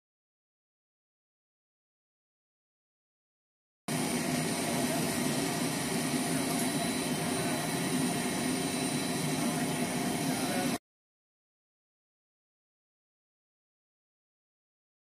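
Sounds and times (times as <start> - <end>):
aircraft machinery rushing and humming: 3.9 - 10.8.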